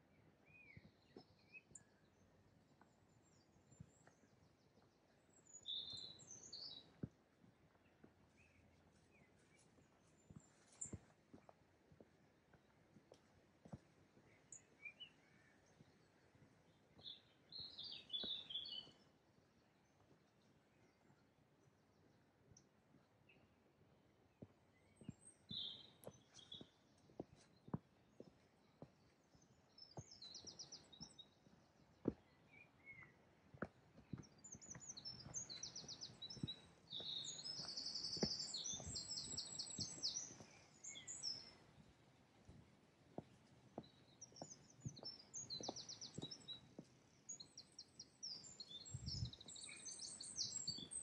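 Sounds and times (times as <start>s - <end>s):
footsteps on woodland path: 0.2s - 21.2s, 23.0s - 51.0s
songbirds trilling: 34.0s - 51.0s.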